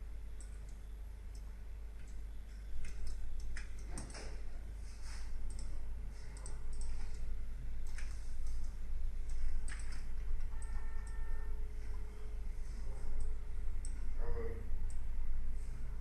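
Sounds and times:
low electrical hum: 0.0s - 16.0s
computer mouse clicking: 0.4s - 4.3s, 5.4s - 11.3s, 13.1s - 14.1s, 14.8s - 15.1s.

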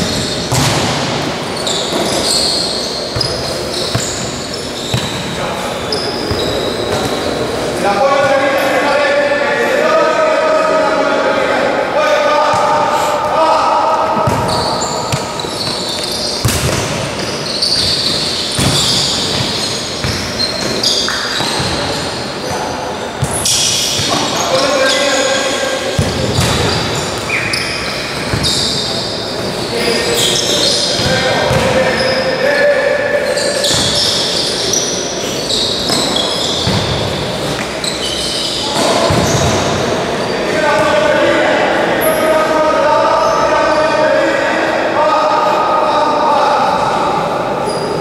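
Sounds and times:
shoes squeaking on court floor: 0.0s - 8.8s, 12.4s - 41.0s, 47.4s - 48.0s.

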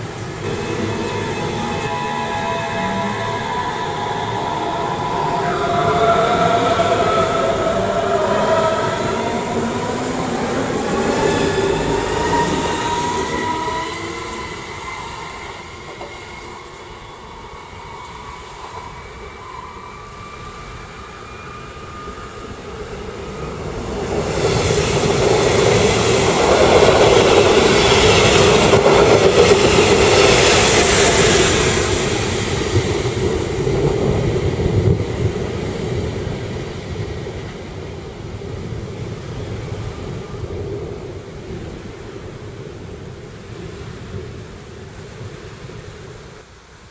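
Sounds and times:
electric train motors whining: 0.0s - 23.8s
train wheels rumbling on rail: 0.0s - 46.4s
high squeal: 0.4s - 33.4s.

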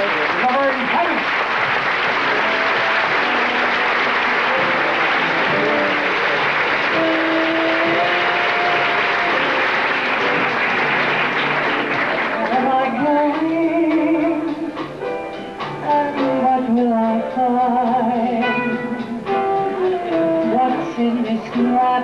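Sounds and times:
audience applauding: 0.0s - 14.2s
live band playing: 0.0s - 22.0s
person singing into microphone: 12.3s - 14.8s, 15.8s - 18.8s, 20.0s - 22.0s.

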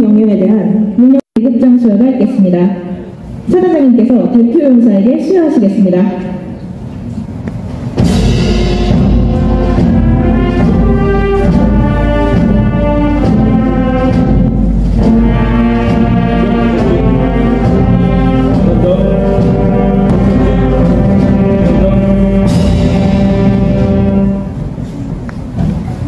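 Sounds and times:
timpani: 6.1s - 26.0s
brass chords: 8.0s - 25.8s.

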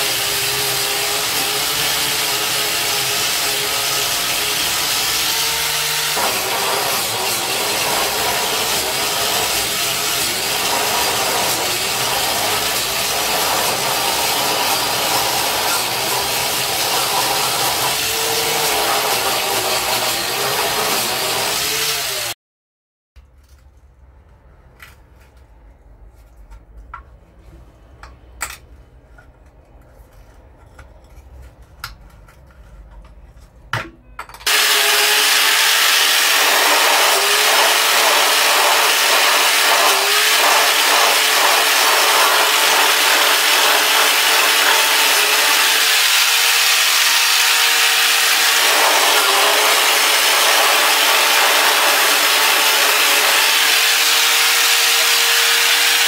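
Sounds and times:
power tool scouring metal: 0.0s - 22.4s, 34.5s - 56.0s.

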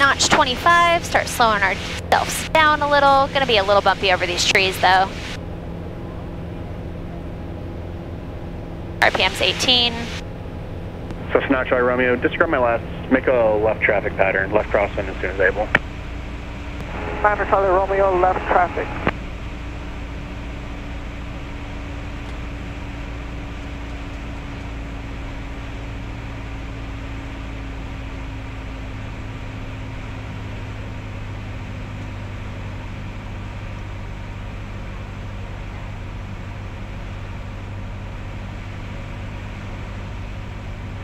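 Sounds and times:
propeller plane engine droning: 0.0s - 41.0s.

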